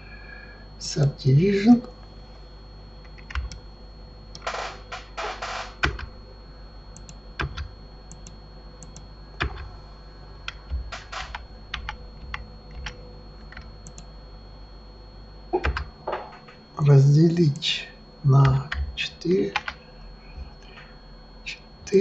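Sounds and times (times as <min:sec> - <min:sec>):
faint steady hum: 0:00.0 - 0:22.0
keyboard and mouse clicks: 0:03.1 - 0:03.6, 0:07.0 - 0:09.7, 0:10.5 - 0:14.1.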